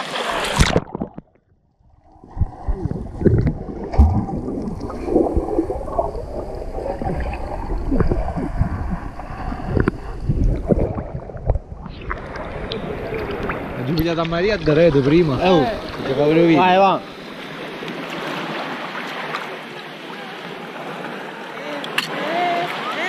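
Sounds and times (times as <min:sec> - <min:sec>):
water splashing at surface: 0:00.0 - 0:01.3
underwater churning and bubbles: 0:00.0 - 0:22.8
low underwater thumps: 0:00.5 - 0:15.3.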